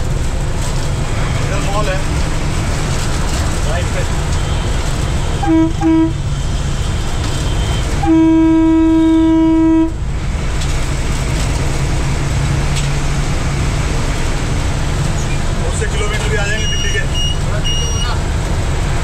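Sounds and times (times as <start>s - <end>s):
bus engine running: 0.0s - 19.0s
road noise: 0.0s - 19.0s
bus horn honking: 4.5s - 6.3s, 7.1s - 10.0s.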